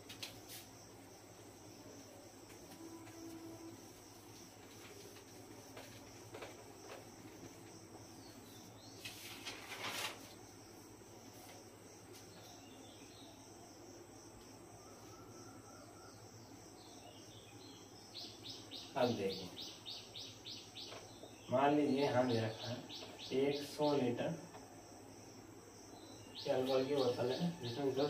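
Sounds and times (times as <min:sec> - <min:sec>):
whiteboard being wiped: 0:00.0 - 0:00.8
cricket trill: 0:00.0 - 0:28.0.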